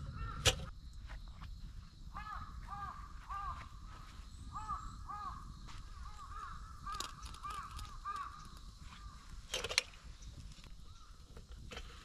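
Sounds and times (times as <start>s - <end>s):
crows cawing: 0.1s - 0.5s, 2.1s - 3.9s, 4.5s - 9.4s.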